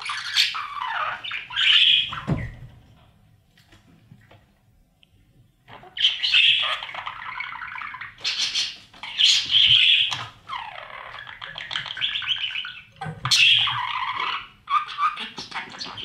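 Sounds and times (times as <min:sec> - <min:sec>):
budgerigars squawking: 0:00.0 - 0:02.3, 0:05.7 - 0:16.0.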